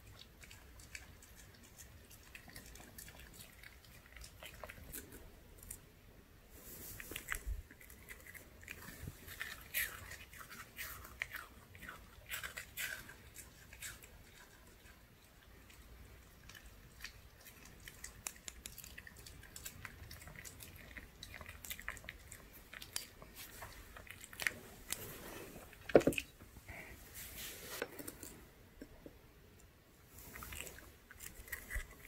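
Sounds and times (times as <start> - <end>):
dog chewing crunchy treat: 7.0 - 26.3, 30.3 - 32.0.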